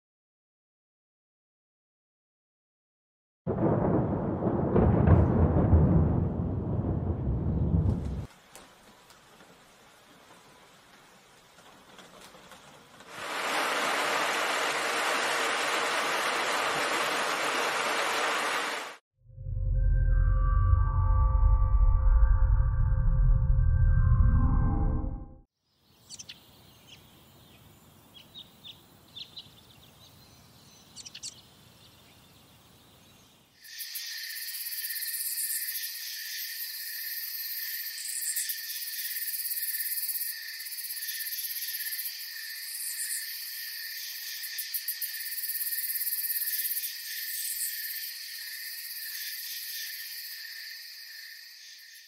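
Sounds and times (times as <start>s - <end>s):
insect chorus buzzing: 30.2s - 52.0s.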